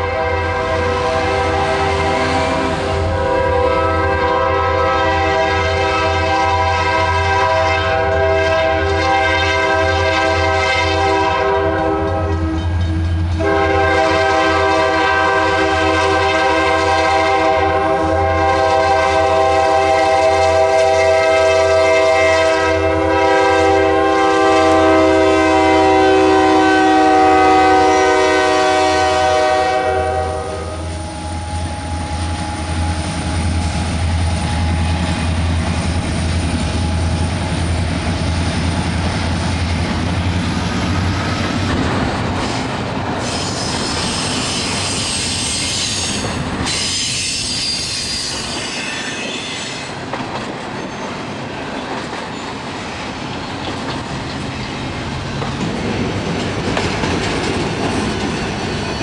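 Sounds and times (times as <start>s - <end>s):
locomotive air horn blasts: 0.0s - 32.3s
low rumble of locomotive: 0.0s - 46.8s.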